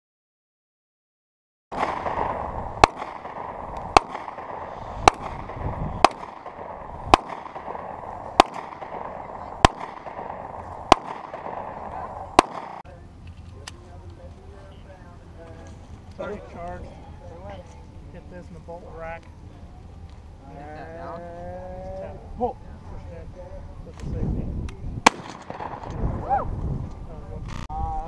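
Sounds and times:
handgun gunshots: 1.8s - 12.8s, 25.1s - 26.0s.

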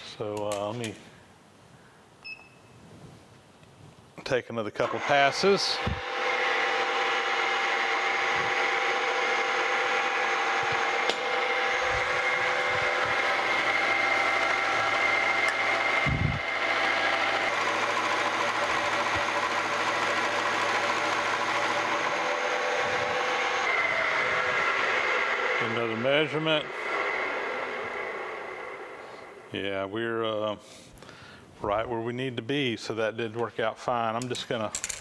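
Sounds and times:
milling machine cutting metal: 4.8s - 29.5s.

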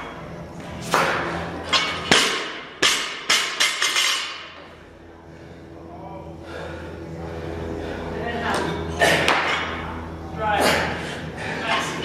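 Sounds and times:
barbell plates bouncing and clanking: 0.9s - 4.6s.

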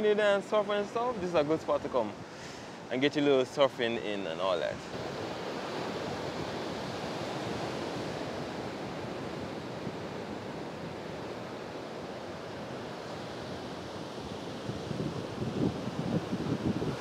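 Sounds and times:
ocean surf breaking: 4.2s - 17.0s.

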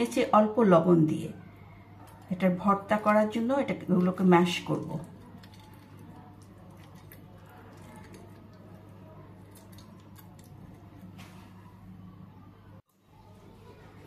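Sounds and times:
soft squishing: 3.9s - 14.0s.

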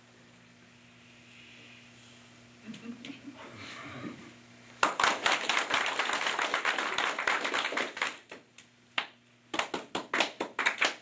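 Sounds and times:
audience applauding: 4.8s - 8.4s, 9.5s - 11.0s.

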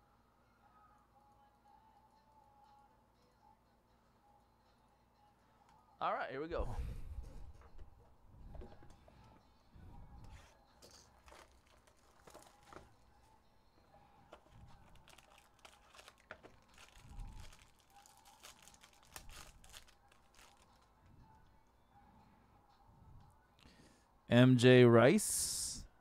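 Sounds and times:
foil pack crinkling and tearing: 11.2s - 12.8s, 14.8s - 20.9s.

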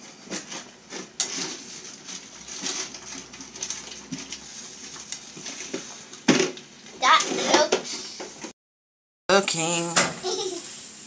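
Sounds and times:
eggs sizzling in a pan: 9.4s - 11.0s.

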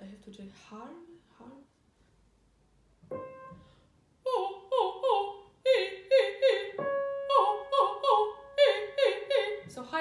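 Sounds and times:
woman singing vocal warm-up: 4.2s - 10.0s.

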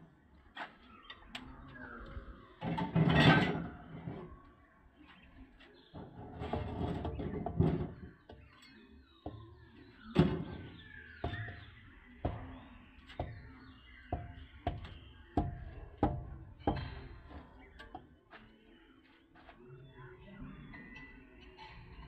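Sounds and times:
tool knocking on clay bricks: 11.2s - 17.1s.

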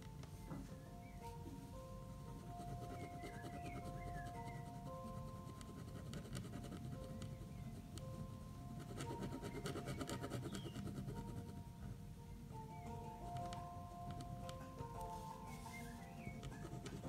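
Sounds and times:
soft background music: 0.0s - 17.0s
pen scratching on paper: 2.6s - 7.5s, 8.8s - 11.6s, 16.4s - 17.0s.

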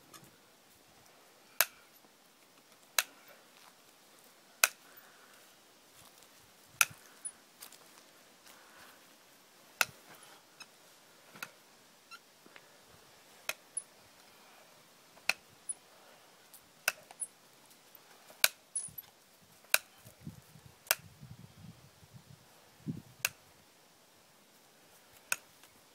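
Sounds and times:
hoof nippers snapping: 6.8s - 7.2s, 16.9s - 17.2s, 25.2s - 25.5s.

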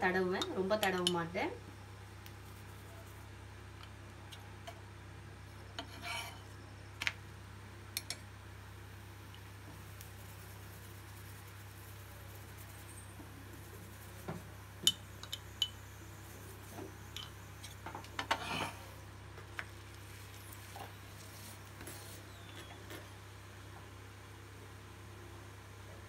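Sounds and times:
utensil scraping griddle: 5.8s - 6.5s, 17.6s - 19.0s.

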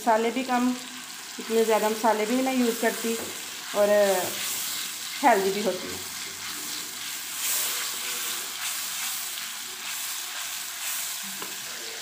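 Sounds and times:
masala sizzling in hot oil: 0.0s - 12.0s
spatula scraping: 2.7s - 11.3s.

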